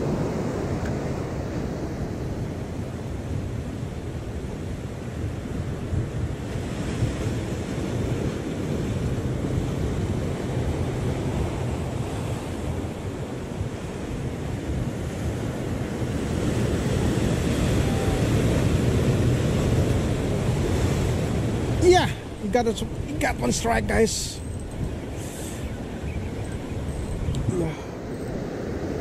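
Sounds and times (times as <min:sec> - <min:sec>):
wind buffeting microphone: 0:00.0 - 0:29.0
surf breaking on rocks: 0:16.2 - 0:24.5.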